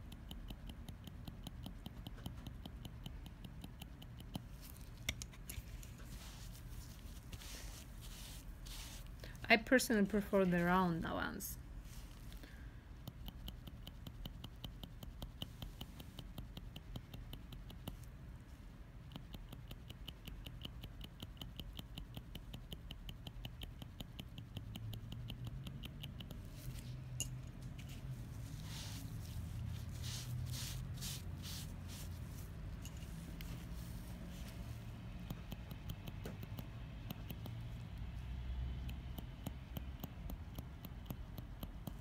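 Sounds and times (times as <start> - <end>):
needle tool tapping: 0.0 - 9.1, 11.9 - 18.1, 19.0 - 38.2, 38.8 - 42.0.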